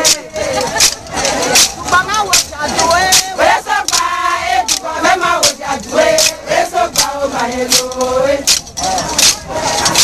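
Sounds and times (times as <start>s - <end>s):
sharp percussive beats: 0.0s - 10.0s
women singing a chant: 0.0s - 10.0s.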